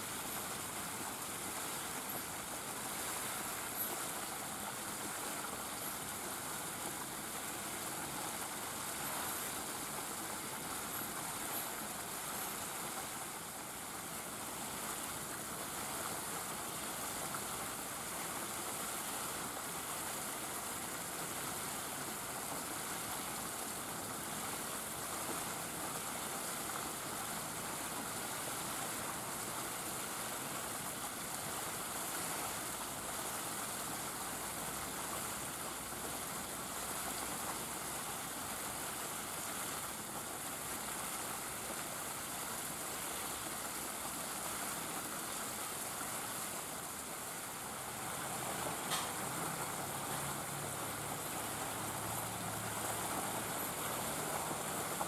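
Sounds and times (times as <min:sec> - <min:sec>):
steady hiss: 0:00.0 - 0:55.0.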